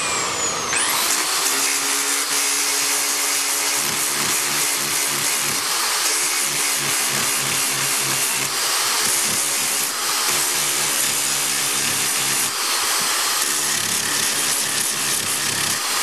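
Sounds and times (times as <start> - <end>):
drill grinding glass edge: 0.0 - 16.0.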